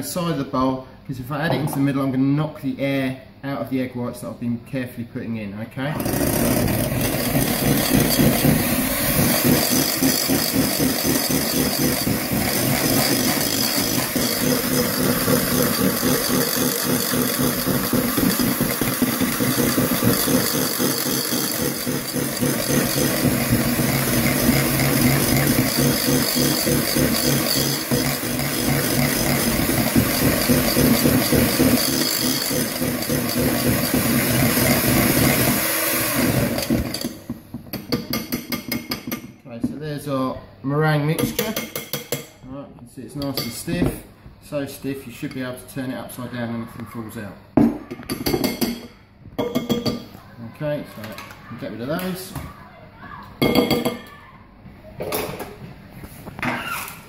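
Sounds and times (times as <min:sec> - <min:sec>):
beaters rattling against bowl: 0:06.0 - 0:35.5
electric hand whisk running: 0:06.0 - 0:37.2.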